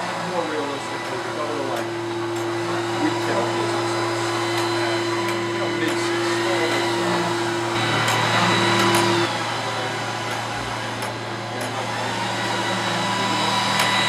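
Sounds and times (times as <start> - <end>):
thin high whine: 0.0 - 11.3
printer whirring: 0.0 - 14.0.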